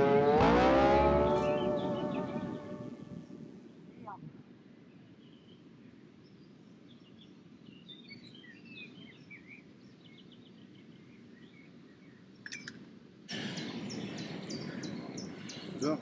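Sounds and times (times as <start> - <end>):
loud noise: 0.0 - 3.5
steady low background noise: 0.0 - 16.0
small birds chirping: 6.2 - 16.0.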